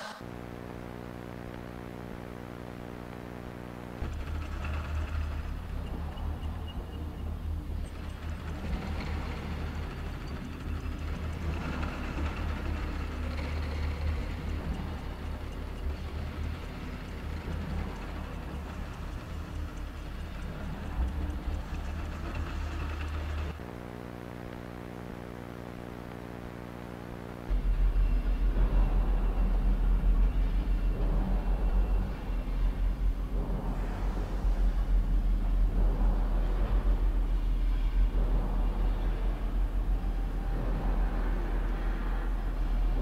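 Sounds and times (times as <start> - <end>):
buzzing electronic hum: 0.0 - 43.0
low rumble with hiss: 0.2 - 43.0.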